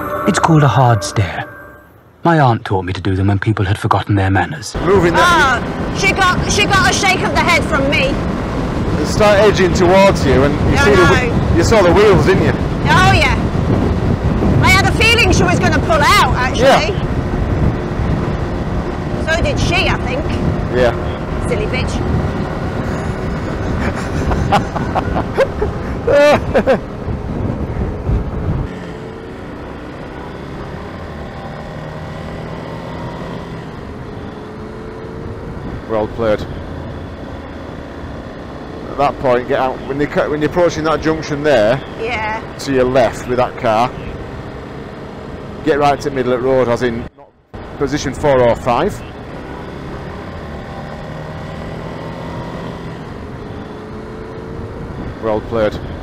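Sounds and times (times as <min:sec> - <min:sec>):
motorcycle engine cruising: 0:04.8 - 0:46.9, 0:47.6 - 0:56.0
wind rumble on microphone: 0:05.7 - 0:29.8, 0:33.6 - 0:37.2.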